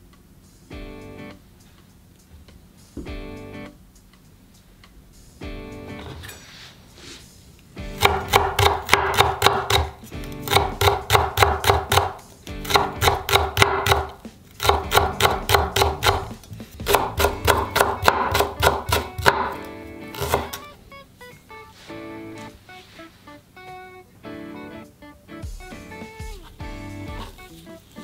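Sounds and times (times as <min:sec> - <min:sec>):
knife tapping on cutting board: 0:08.0 - 0:19.6.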